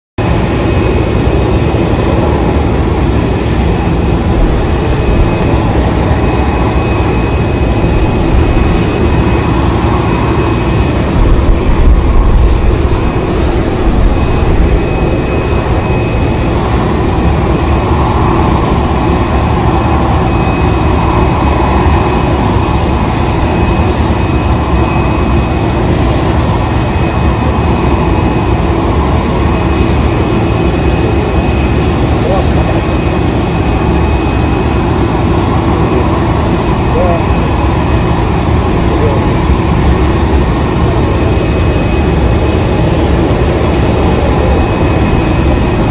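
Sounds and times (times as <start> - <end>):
airliner engine low rumble: 0.2 - 45.9
thin high whine: 0.2 - 45.9.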